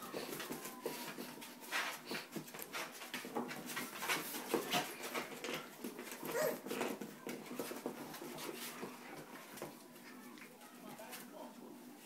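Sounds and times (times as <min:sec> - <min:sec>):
light clicks and scuffles: 0:00.0 - 0:11.6
puppies whimpering: 0:06.2 - 0:06.8.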